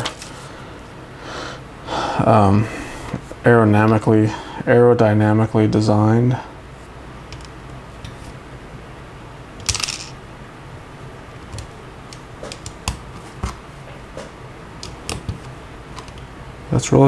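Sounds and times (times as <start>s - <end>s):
plastic pieces rattling: 9.6s - 10.2s.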